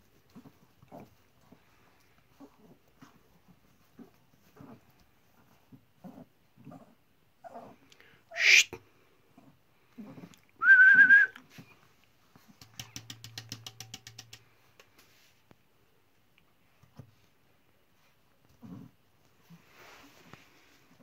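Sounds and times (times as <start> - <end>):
high whistle: 10.6 - 11.4
sharp clicks: 12.6 - 14.9.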